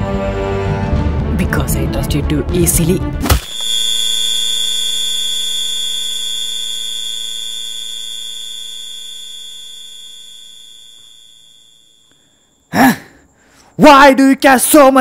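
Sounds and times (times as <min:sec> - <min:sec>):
high-pitched ear ringing tone: 0:03.4 - 0:12.7.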